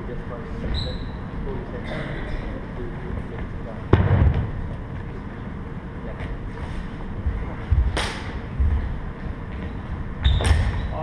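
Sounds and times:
footwork thuds on wooden floor: 7.2s - 10.7s.

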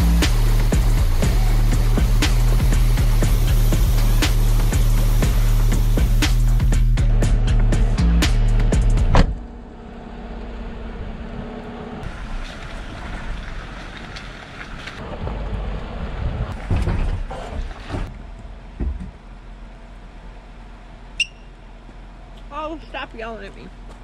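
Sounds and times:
low steady rumble: 0.0s - 24.0s
short high chirp: 21.2s - 21.6s.

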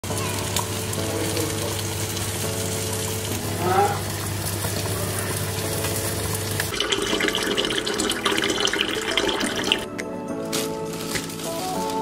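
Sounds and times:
water bubbling at the boil: 0.0s - 9.9s
tap water pouring into kettle: 4.1s - 9.9s.

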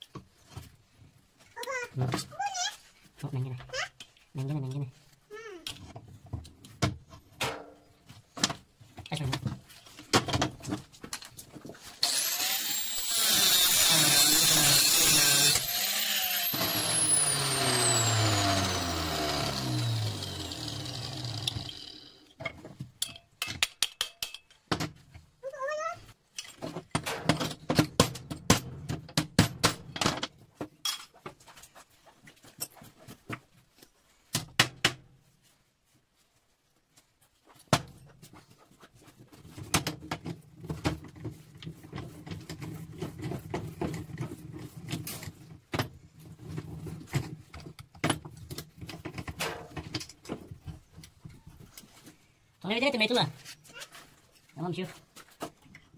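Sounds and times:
power tool running: 12.0s - 22.3s.

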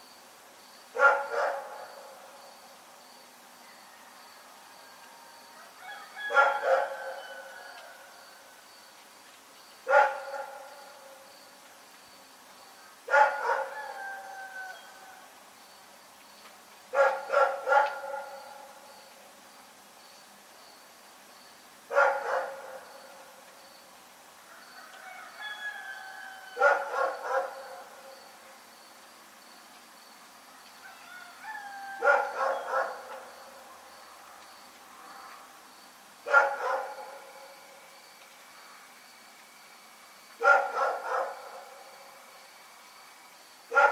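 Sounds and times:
dog barking: 1.0s - 2.0s, 6.2s - 7.4s, 9.9s - 10.8s, 13.1s - 14.0s, 16.9s - 18.6s, 21.9s - 22.8s, 26.6s - 27.9s, 32.0s - 33.3s, 36.3s - 37.4s, 40.4s - 41.7s.

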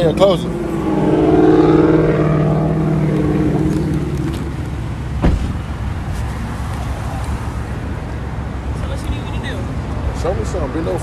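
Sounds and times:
car engine hum: 0.0s - 11.0s
car door shutting thud: 5.2s - 5.6s.

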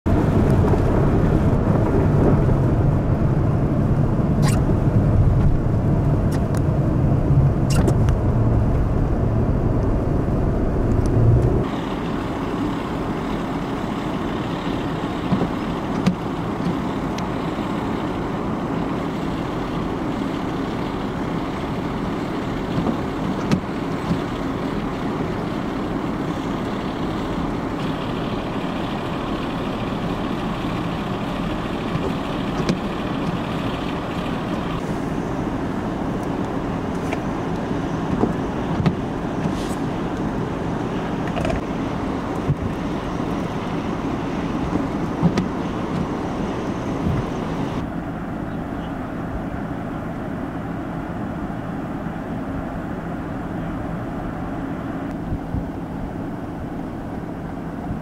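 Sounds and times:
vehicle low rumble: 0.0s - 58.0s
hiss of wind-driven snow: 33.8s - 36.0s, 37.0s - 41.2s.

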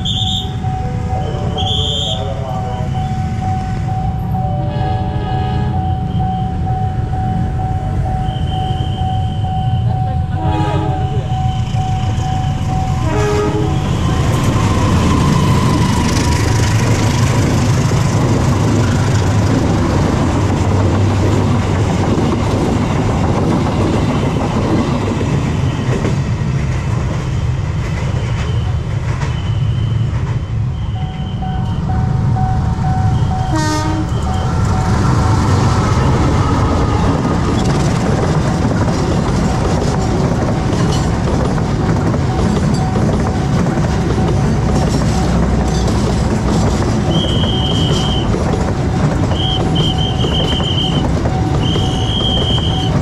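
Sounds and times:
level crossing warning bell: 0.0s - 13.4s, 31.0s - 35.8s, 42.0s - 48.1s
train wheels rumbling over rails: 0.0s - 53.0s
train horn: 4.6s - 5.9s, 9.8s - 11.3s, 13.0s - 14.0s, 33.3s - 34.4s.

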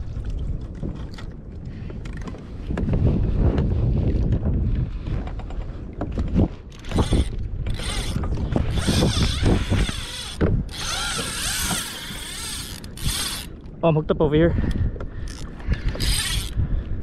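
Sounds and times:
water against kayak: 0.0s - 17.0s
wind: 0.0s - 17.0s
fishing reel drag buzzing: 6.8s - 13.6s, 15.3s - 16.6s.

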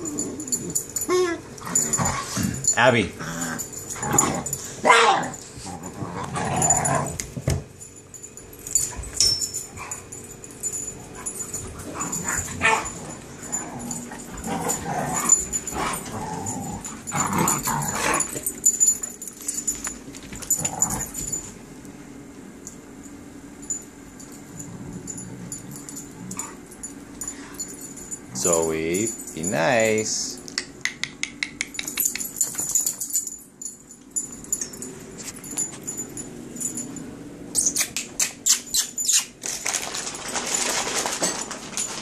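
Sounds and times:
dogs growling and yipping: 0.0s - 7.4s, 8.8s - 19.4s, 20.2s - 21.5s, 24.3s - 28.0s
dogs scuffling: 8.6s - 21.6s, 39.0s - 42.0s.

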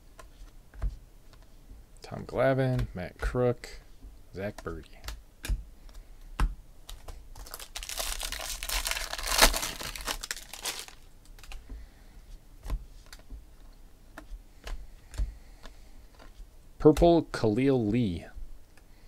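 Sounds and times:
foil wrapper crinkling and tearing: 7.4s - 11.6s.

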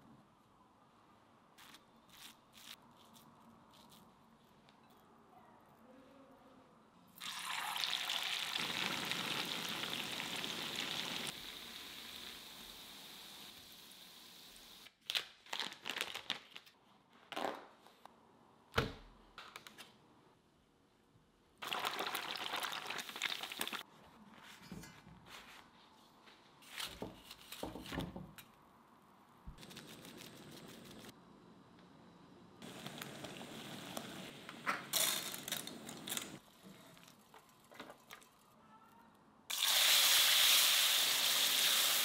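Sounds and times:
food sizzling in hot oil: 7.2s - 14.8s, 21.6s - 23.8s, 39.5s - 42.0s
plastic packaging crinkling: 15.0s - 16.8s.

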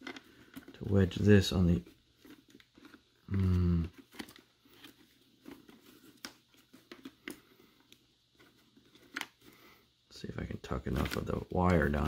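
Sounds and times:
hands handling helmet clicks: 0.0s - 0.8s.

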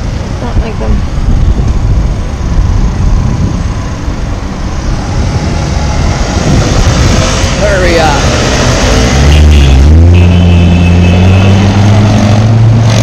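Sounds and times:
wind buffeting microphone: 0.0s - 9.2s
cars and motorcycles passing: 0.0s - 13.0s.

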